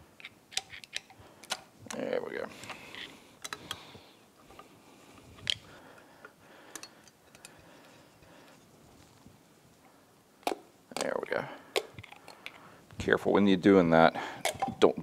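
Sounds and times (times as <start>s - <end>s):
metal clicks from tools and bolts: 0.2s - 2.0s, 2.6s - 3.8s, 6.7s - 8.6s.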